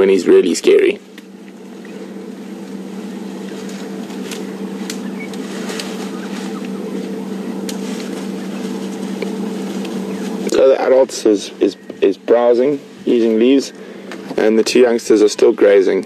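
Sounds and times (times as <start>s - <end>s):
vehicle engine humming: 0.0s - 16.0s
faint snaps: 3.6s - 6.0s, 6.6s - 8.2s.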